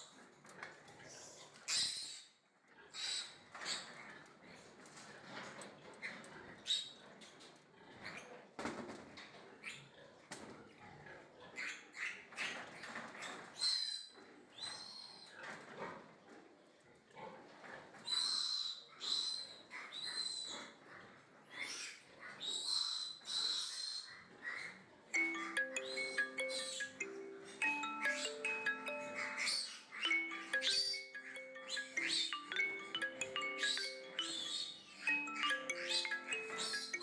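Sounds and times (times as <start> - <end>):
piglet squealing: 29.0 - 32.4.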